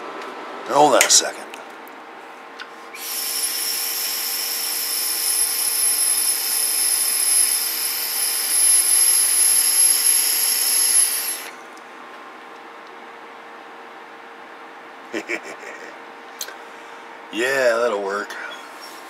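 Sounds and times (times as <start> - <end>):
steady hiss: 3.0 - 11.6.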